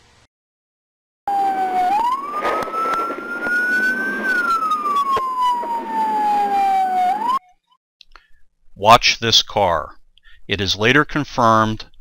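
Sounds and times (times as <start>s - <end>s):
road noise: 1.3s - 7.4s
police siren wailing: 1.3s - 7.6s.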